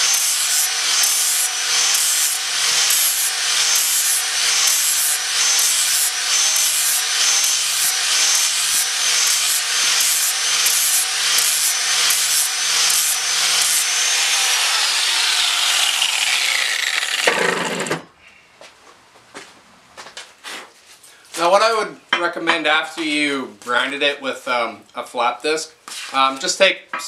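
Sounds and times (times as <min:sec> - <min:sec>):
grinder spinning down: 0:00.0 - 0:18.1
angle grinder grinding steel: 0:00.0 - 0:18.2.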